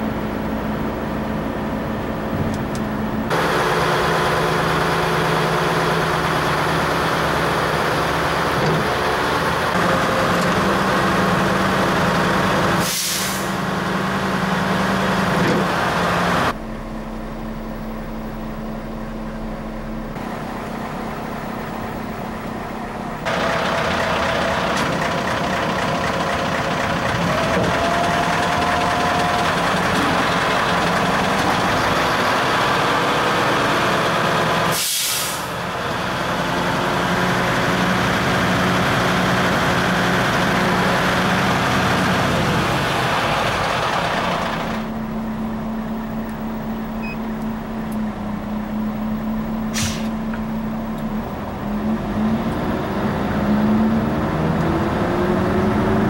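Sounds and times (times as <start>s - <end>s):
diesel engine idling: 0.0s - 56.0s
short air hisses: 12.8s - 13.6s, 34.7s - 35.5s, 49.7s - 50.2s.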